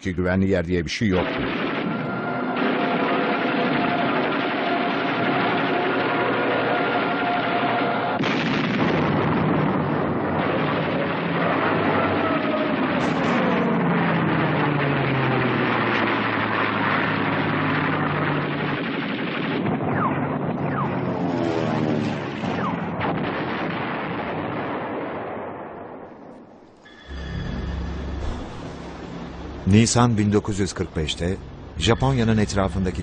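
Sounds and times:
gunfire: 1.2 - 26.3
explosions: 1.2 - 32.2
aircraft engines droning: 1.3 - 8.2, 9.7 - 18.9, 20.0 - 23.0, 26.7 - 33.0.

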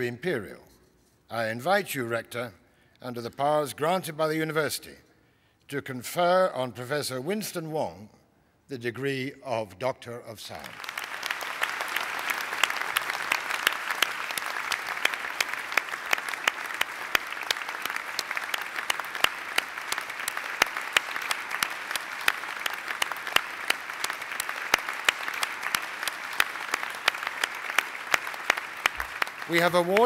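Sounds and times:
crowd applauding: 10.6 - 30.0.

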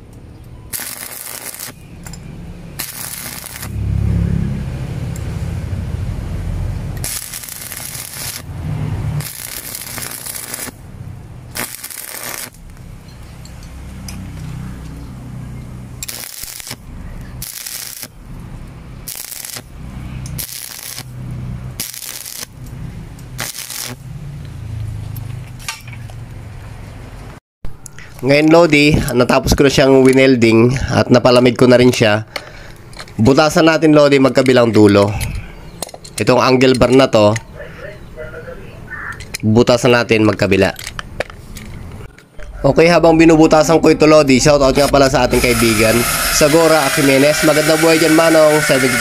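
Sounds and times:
welding arc crackling and sizzling: 0.7 - 2.0, 2.7 - 3.9, 6.8 - 13.2, 15.8 - 24.1, 44.8 - 49.0.

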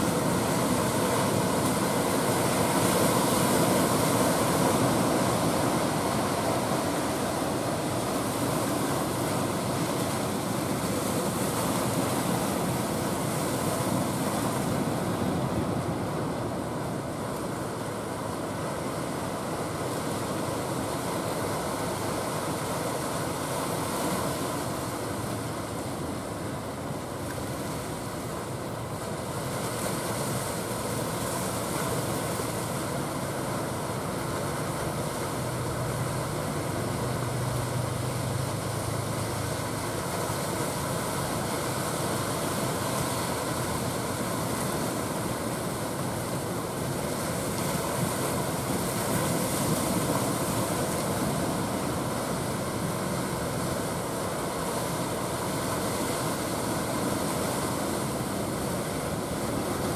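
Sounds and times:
sea wash: 0.0 - 59.9
boat engine humming: 30.8 - 44.5.

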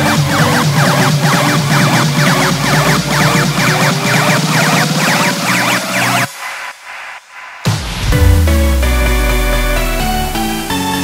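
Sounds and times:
layered synth chords: 0.0 - 6.4, 7.9 - 11.0
deep held bass note: 8.0 - 10.7.

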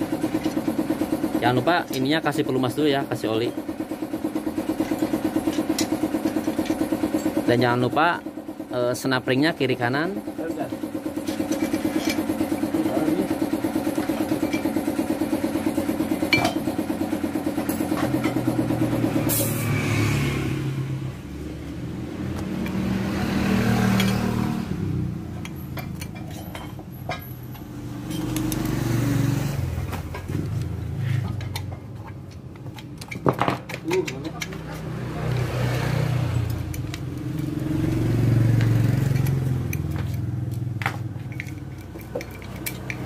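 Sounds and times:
engine running: 0.0 - 43.0.

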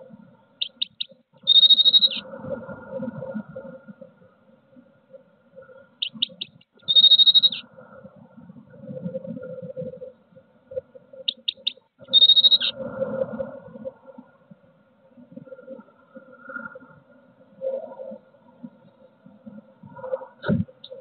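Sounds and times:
bird song with trill: 0.6 - 2.2, 6.0 - 7.6, 11.2 - 12.8.

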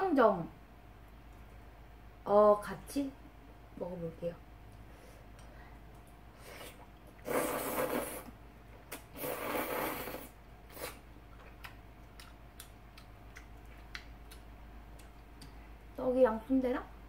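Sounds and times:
person slurping noodles: 6.4 - 8.3, 8.9 - 11.0.

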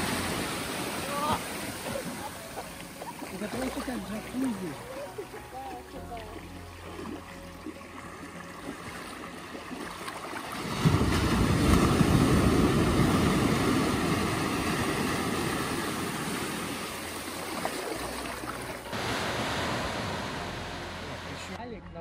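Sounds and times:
wave washing in: 0.0 - 2.9, 10.4 - 21.6.

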